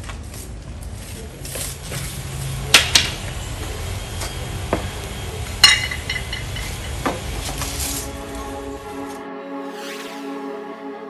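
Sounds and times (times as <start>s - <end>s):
broom knocking clay pots: 0.5s - 8.4s.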